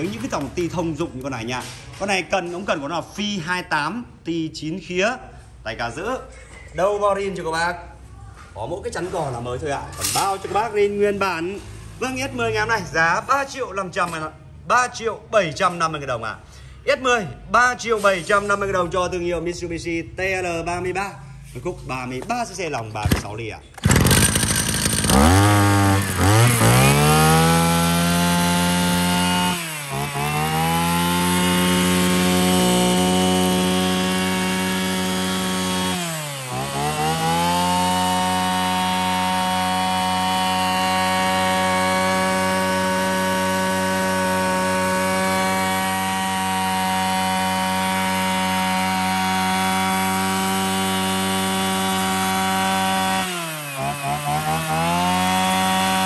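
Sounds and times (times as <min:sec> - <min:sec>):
brush cutter engine revving: 0:23.0 - 0:56.0.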